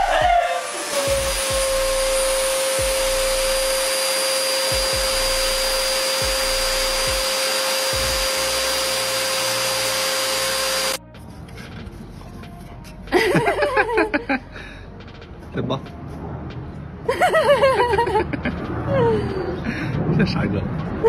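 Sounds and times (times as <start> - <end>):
electric motor whirring: 0.0 - 11.0.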